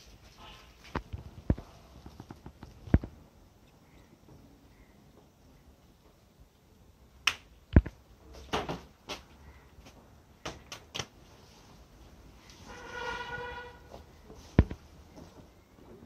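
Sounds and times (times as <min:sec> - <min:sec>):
sharp knocks and snaps: 0:00.9 - 0:04.4, 0:07.2 - 0:11.2.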